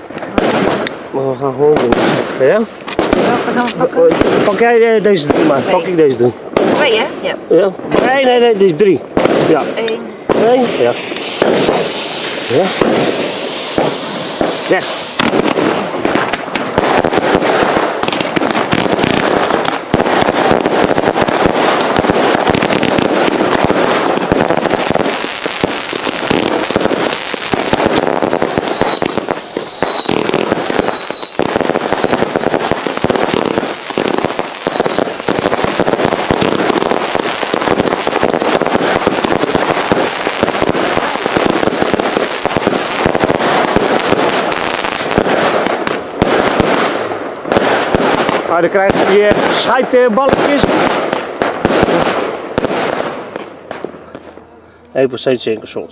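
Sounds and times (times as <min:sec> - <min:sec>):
fireworks thumps bangs and crackle: 0:00.0 - 0:54.4
firework whistles: 0:10.4 - 0:16.4, 0:25.0 - 0:37.6.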